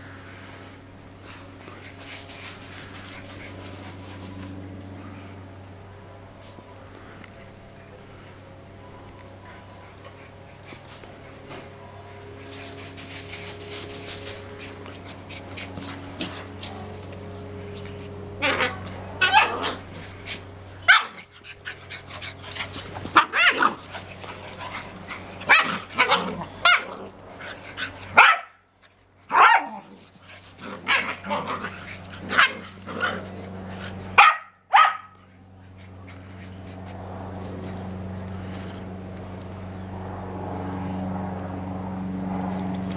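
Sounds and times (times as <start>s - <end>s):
steady low hum: 0.0s - 42.9s
dogs barking: 18.4s - 20.0s, 20.8s - 27.1s, 27.8s - 28.6s, 29.3s - 30.0s, 34.0s - 36.9s.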